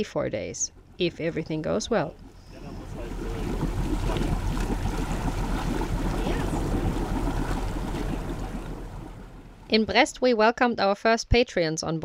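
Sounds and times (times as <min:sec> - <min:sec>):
low hum: 0:00.0 - 0:10.2
sea washing: 0:00.0 - 0:10.2
wind buffeting microphone: 0:00.8 - 0:10.1.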